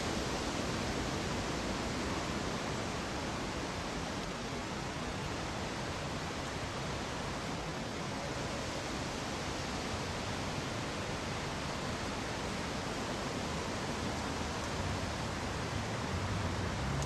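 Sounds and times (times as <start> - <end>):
steady broadband noise: 0.0 - 17.0.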